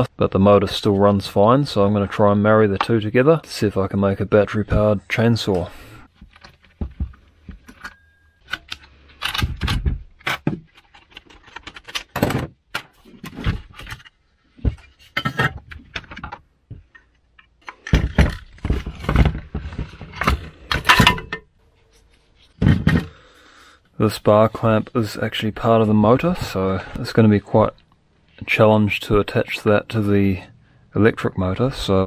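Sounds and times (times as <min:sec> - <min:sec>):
metal parts clinking and clattering: 0:17.0 - 0:21.5.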